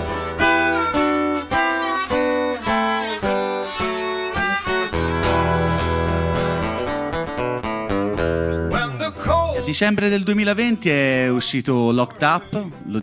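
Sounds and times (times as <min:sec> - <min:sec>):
acoustic guitar strumming: 0:00.0 - 0:12.8
blues harmonica melody: 0:00.0 - 0:13.0.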